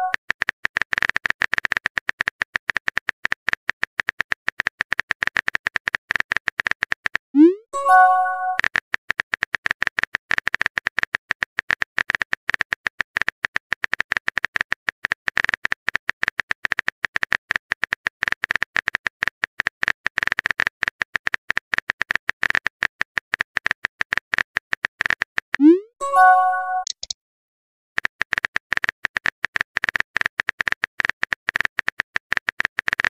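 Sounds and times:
phone keyboard typing clicks: 0:07.9 - 0:27.2.

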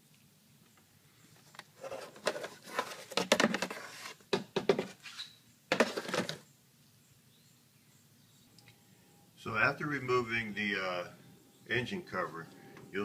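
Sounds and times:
hard plastic clattering: 0:01.4 - 0:05.0, 0:05.7 - 0:06.4.

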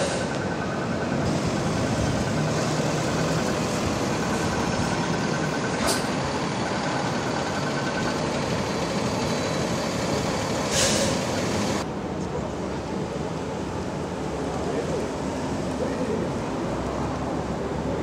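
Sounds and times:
truck diesel engine running: 0:00.0 - 0:11.9
street traffic noise: 0:00.0 - 0:18.0
short hiss: 0:10.7 - 0:11.2.

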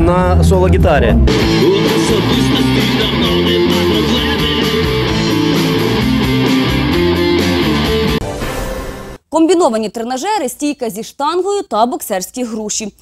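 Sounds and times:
rock band playing: 0:01.1 - 0:09.2.

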